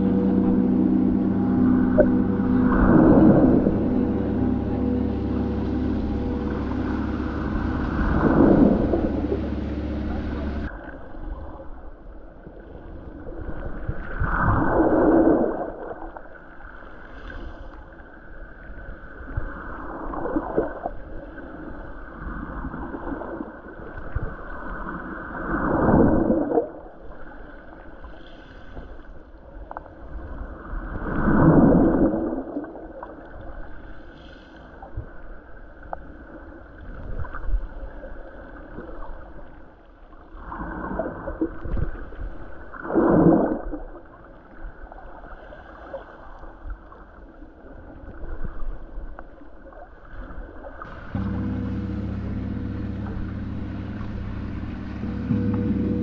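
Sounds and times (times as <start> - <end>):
underwater rushing and gurgling: 0.0 - 28.7, 29.4 - 56.0.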